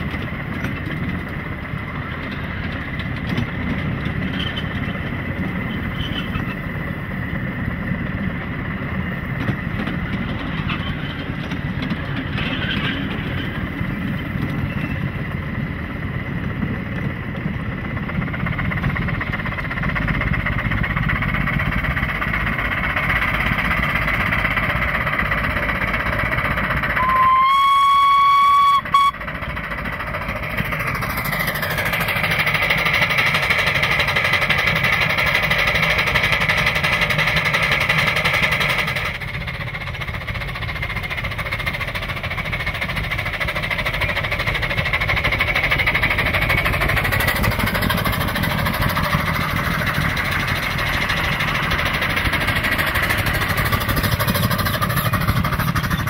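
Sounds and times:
steam locomotive rumbling: 0.0 - 56.0
steam whistle blast: 27.0 - 29.2.

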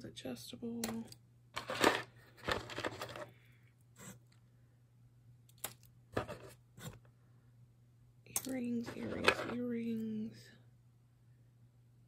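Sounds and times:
jewelry rustling and scraping: 1.6 - 4.4, 6.1 - 7.1, 8.5 - 9.8.

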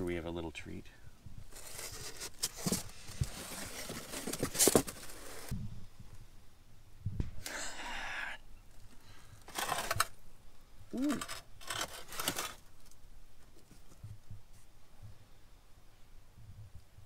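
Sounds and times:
metal parts rustling in cardboard box: 1.5 - 5.5, 9.4 - 10.2, 11.1 - 12.8.

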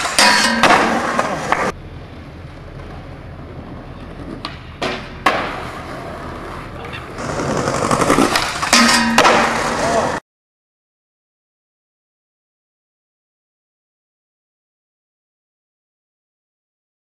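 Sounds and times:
skateboard landing crack: 0.0 - 1.8, 4.0 - 10.2
skateboard sliding on metal rail: 0.0 - 1.8, 2.8 - 10.2
skateboard wheels rolling on asphalt: 0.0 - 10.2
skateboard pop: 4.2 - 6.0.

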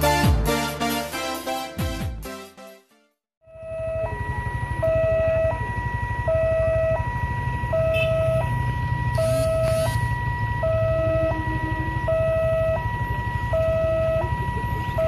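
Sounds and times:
two-tone crossing warning siren: 3.4 - 15.0.

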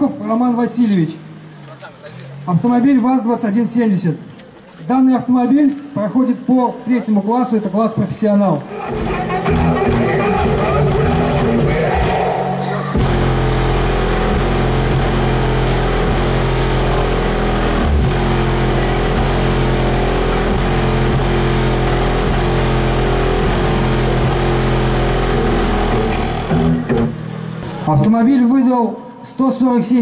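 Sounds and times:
deep bass note with harsh buzz: 8.6 - 28.6.

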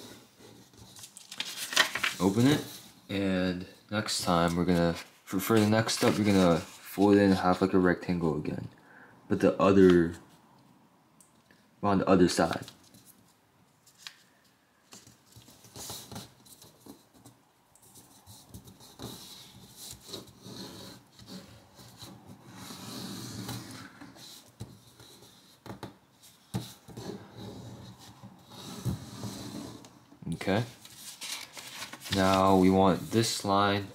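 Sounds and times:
paper folding and crackling: 0.7 - 2.8, 4.1 - 7.7, 30.5 - 33.8.

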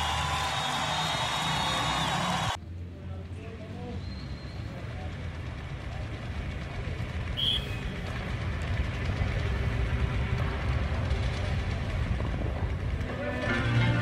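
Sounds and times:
low outdoor rumble: 0.0 - 14.0
background music: 13.0 - 14.0.

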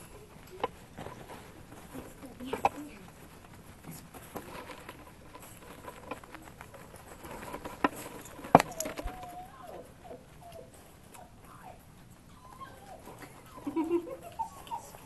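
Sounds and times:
paws pattering and clicking: 0.0 - 15.0
puppy whining: 5.3 - 15.0.

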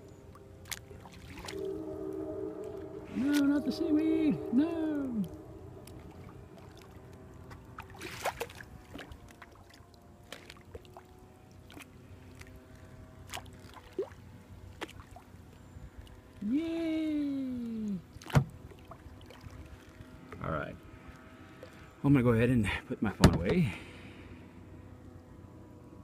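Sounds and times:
paddle sloshing water: 0.6 - 1.8, 5.2 - 16.2
falling vocal groan: 1.6 - 6.6.

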